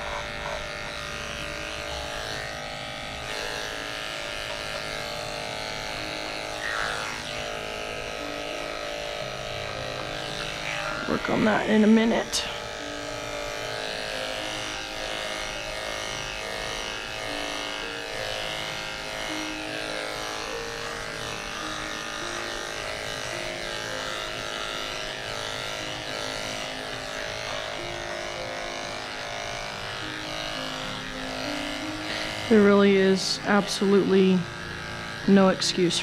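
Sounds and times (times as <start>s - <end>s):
electric clippers buzzing: 0.0s - 36.0s.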